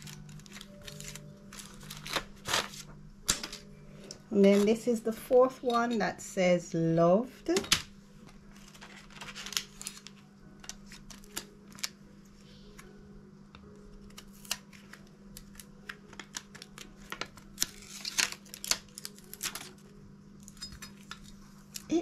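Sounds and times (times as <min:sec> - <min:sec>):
tape and paper peeling clicks: 0:00.0 - 0:03.4, 0:08.6 - 0:12.0, 0:13.9 - 0:19.9.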